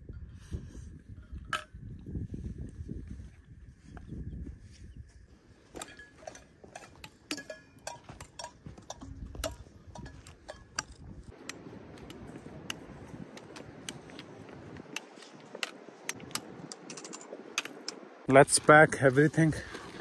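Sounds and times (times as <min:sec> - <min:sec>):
boots on stony ground: 0:05.4 - 0:15.8, 0:18.4 - 0:20.0
trekking poles tapping on rock: 0:05.7 - 0:18.1.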